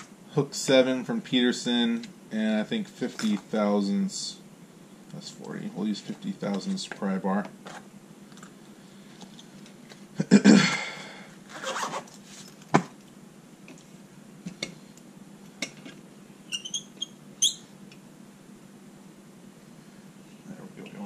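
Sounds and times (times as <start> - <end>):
case scraping rustle: 11.5 - 12.8
short metallic squeaks: 16.5 - 17.7.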